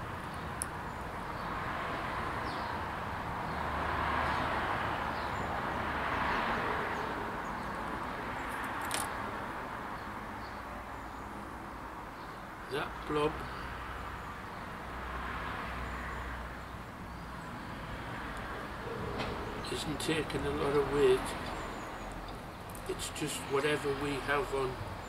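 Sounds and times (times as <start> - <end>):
small clicks: 8.5 - 9.1.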